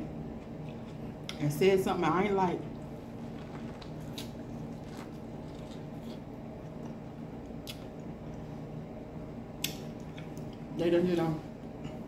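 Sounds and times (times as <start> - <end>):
steady low hum: 0.0 - 12.0
wet mouth clicks: 6.8 - 8.1, 9.6 - 10.5.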